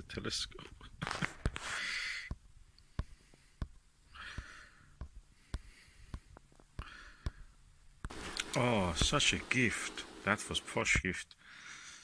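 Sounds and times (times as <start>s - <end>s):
person breathing out softly: 1.6s - 7.6s, 11.4s - 12.0s.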